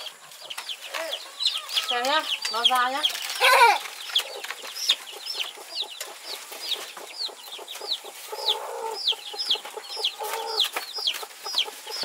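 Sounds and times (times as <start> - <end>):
chicks peeping: 0.0 - 12.0
low cluck: 3.4 - 12.0.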